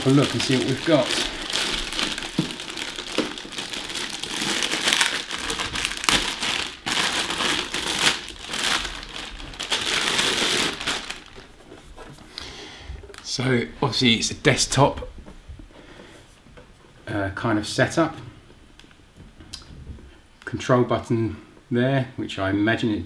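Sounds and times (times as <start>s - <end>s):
plastic bag crinkling: 0.0s - 11.7s.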